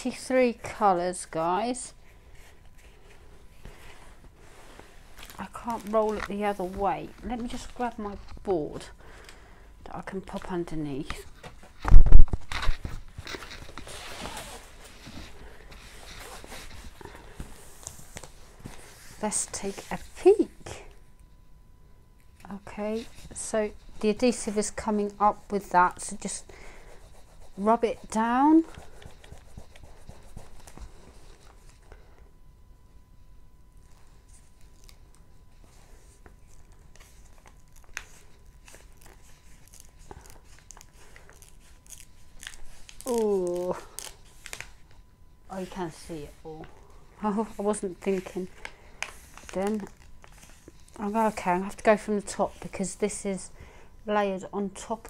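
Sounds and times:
paper sheet crinkling: 0:05.2 - 0:08.5, 0:35.9 - 0:45.0, 0:47.3 - 0:52.8.

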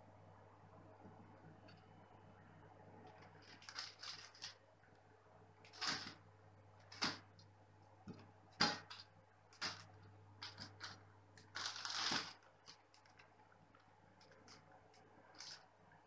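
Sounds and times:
plastic bag crinkling: 0:03.1 - 0:04.6, 0:05.6 - 0:06.2, 0:08.6 - 0:14.6, 0:15.3 - 0:15.6.

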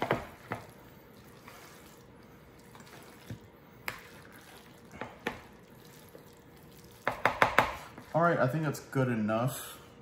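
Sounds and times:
knife tapping and scraping bowl: 0:07.0 - 0:08.1.

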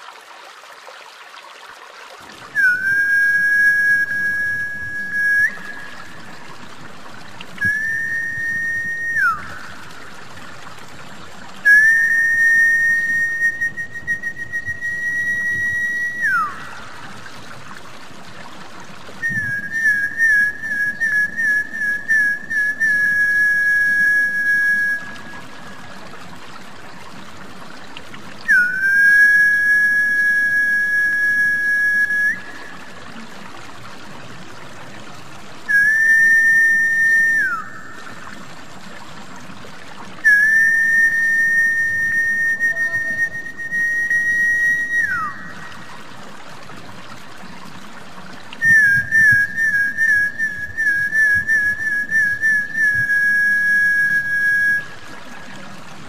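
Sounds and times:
water trickling: 0:00.0 - 0:56.0
person whistling: 0:02.6 - 0:06.2, 0:07.6 - 0:09.8, 0:11.6 - 0:16.7, 0:19.2 - 0:25.5, 0:28.5 - 0:32.8, 0:35.7 - 0:38.1, 0:40.2 - 0:45.7, 0:48.6 - 0:55.1.

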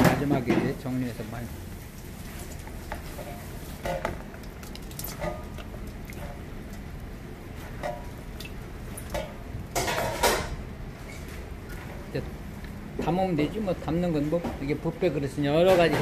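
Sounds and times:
wet spinach squishing in a bowl: 0:01.4 - 0:09.0.

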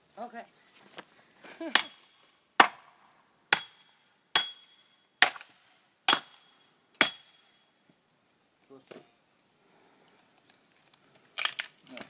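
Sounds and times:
axe striking axe with metallic ring: 0:01.8 - 0:05.5, 0:06.1 - 0:07.6.

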